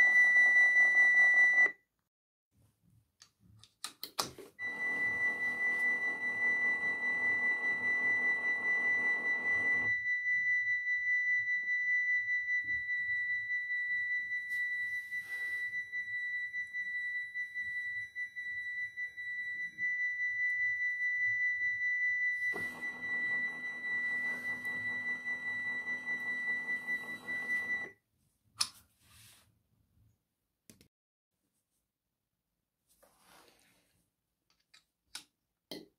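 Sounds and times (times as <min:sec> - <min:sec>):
electronic warning bell tone: 0:00.0 - 0:01.8, 0:04.6 - 0:28.0.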